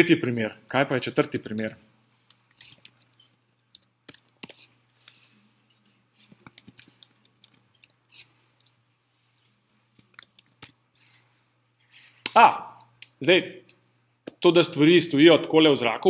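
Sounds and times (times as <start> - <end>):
keyboard typing: 1.2 - 13.2.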